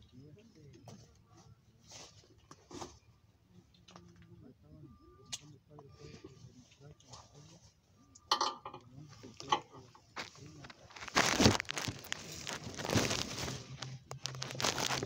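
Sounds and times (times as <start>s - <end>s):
rustling leaves and handling noise: 10.1s - 15.0s.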